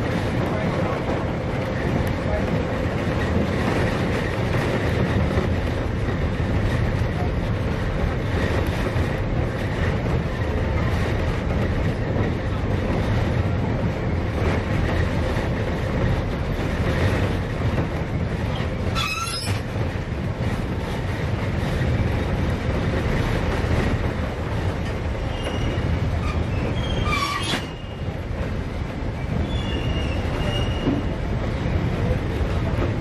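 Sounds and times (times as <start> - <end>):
train wheels rumbling on rails: 0.0 - 33.0
high wheel squeals: 18.9 - 19.6, 25.2 - 28.1, 29.2 - 31.0.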